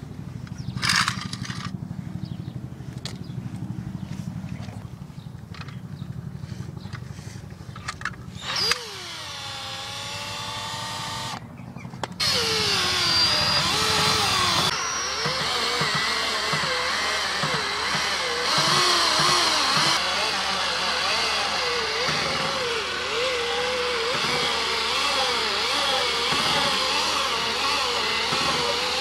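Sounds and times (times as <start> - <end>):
cordless drill motor whine: 8.3 - 11.4, 12.2 - 29.0.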